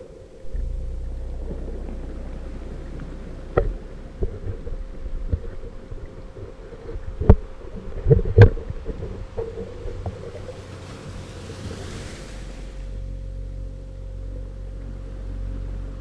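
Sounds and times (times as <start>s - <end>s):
faint steady hum: 0.0s - 16.0s
low underwater rumble: 0.0s - 16.0s
sharp knocks and thumps: 0.4s - 10.5s.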